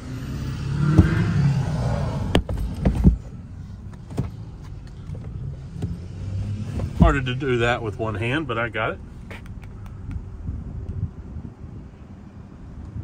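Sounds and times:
car engine idling: 0:01.0 - 0:06.0, 0:06.6 - 0:11.4.

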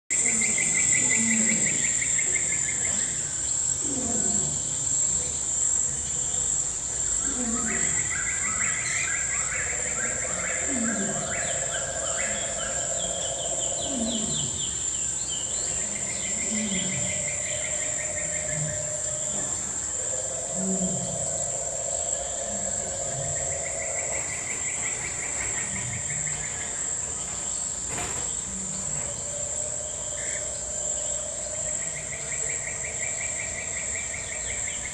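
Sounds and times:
shrill insect chorus: 0:00.1 - 0:34.9
short low falling calls: 0:07.2 - 0:26.8
pulsed trills: 0:08.0 - 0:27.2.

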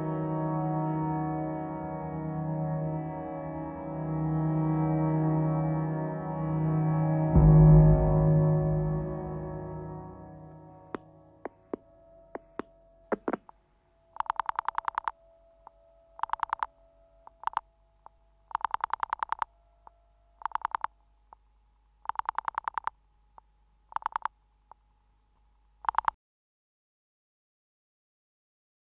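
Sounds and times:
faint steady line tone: 0:10.4 - 0:26.1
rotary dial pulse clicks: 0:14.2 - 0:17.7, 0:18.5 - 0:19.5, 0:20.4 - 0:21.4, 0:22.0 - 0:23.0, 0:23.9 - 0:24.3, 0:25.8 - 0:26.2.

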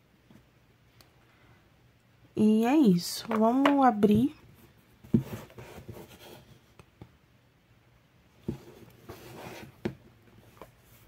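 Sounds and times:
hands handling cardboard box: 0:03.3 - 0:06.8, 0:08.4 - 0:11.0.

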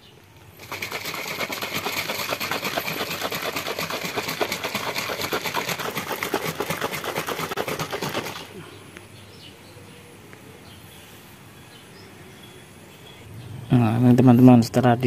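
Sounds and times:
liquid sloshing in shaken tumbler: 0:00.6 - 0:08.6.

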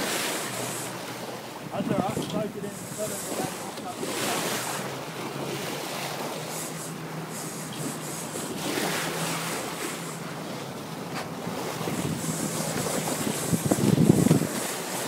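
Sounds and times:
boat engine humming: 0:00.0 - 0:15.0
water wash: 0:00.0 - 0:15.0
wind buffeting microphone: 0:01.6 - 0:04.1, 0:11.4 - 0:14.9.

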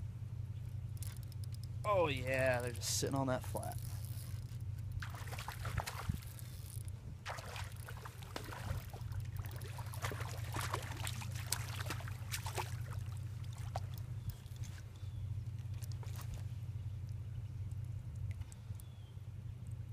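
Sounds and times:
steady low hum: 0:00.0 - 0:19.9
fish splashing at water surface: 0:05.0 - 0:06.5, 0:07.3 - 0:14.8.

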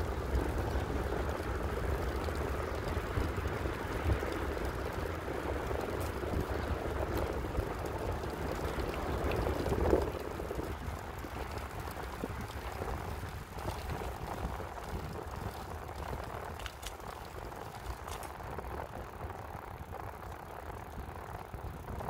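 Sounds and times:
bicycle tyres rolling on asphalt: 0:00.0 - 0:22.0
wind noise: 0:00.0 - 0:22.0
faint ticks: 0:00.3 - 0:22.0.

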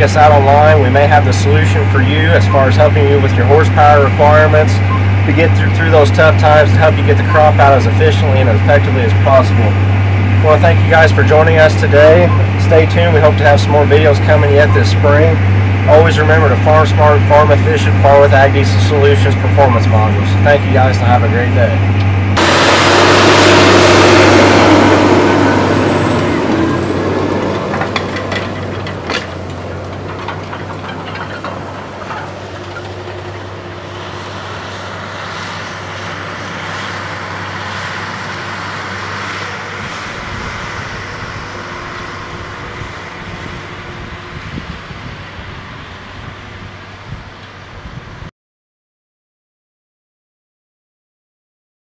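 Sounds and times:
tractor diesel engine under load: 0:00.0 - 0:47.7.

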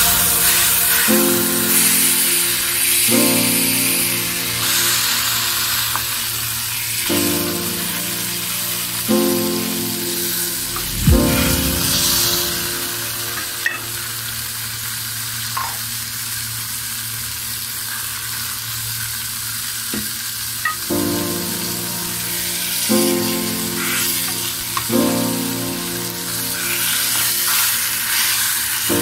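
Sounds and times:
fish sizzling in a pan: 0:00.0 - 0:10.7, 0:12.8 - 0:29.0
soft background music: 0:00.0 - 0:14.2, 0:20.8 - 0:29.0.

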